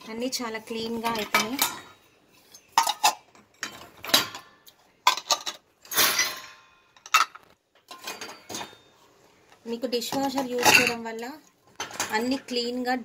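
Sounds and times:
steel dishes clinking: 1.1s - 4.5s, 5.1s - 8.9s.

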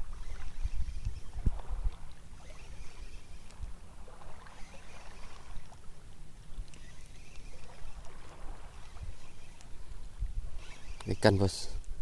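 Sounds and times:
wind rumble on microphone: 0.0s - 4.6s, 7.6s - 10.7s
fishing reel ticking: 0.0s - 12.0s.

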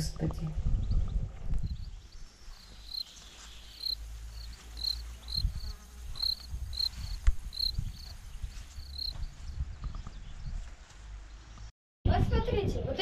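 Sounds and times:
wind rumble on microphone: 0.0s - 3.0s, 4.3s - 13.0s
microphone handling noise: 5.2s - 10.6s.

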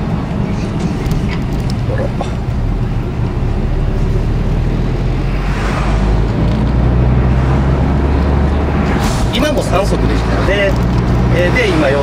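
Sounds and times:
car engine running: 0.0s - 8.9s
road noise: 0.0s - 12.0s
rush of noise: 0.1s - 10.7s.

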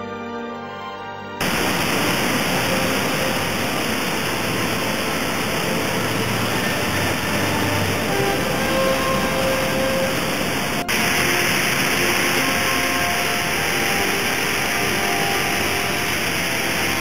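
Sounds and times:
background music: 0.0s - 17.0s
floodwater rushing through dam: 1.4s - 17.0s.

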